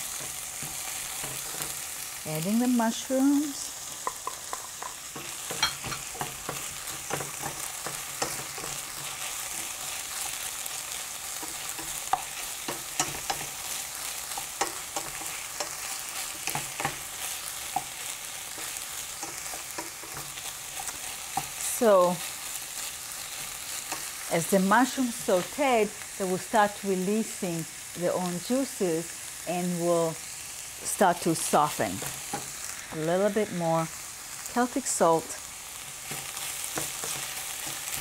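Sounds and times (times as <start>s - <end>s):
mushrooms sizzling in a pan: 0.0s - 38.0s
wooden spatula scraping a pan: 35.8s - 38.0s.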